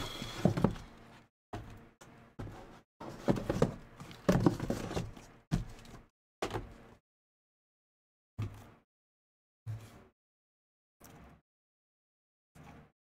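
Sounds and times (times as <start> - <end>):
boxes knocking and scuffing on table: 0.0 - 1.0, 2.4 - 6.7.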